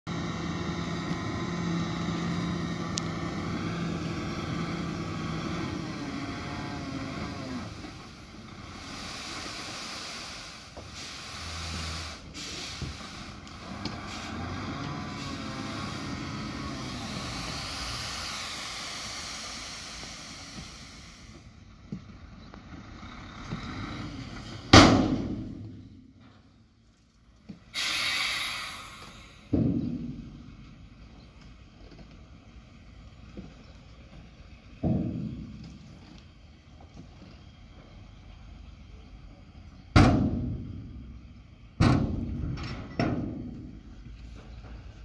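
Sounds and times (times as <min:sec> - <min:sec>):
truck diesel engine revving: 0:00.0 - 0:25.8
sand sliding out: 0:03.2 - 0:21.3.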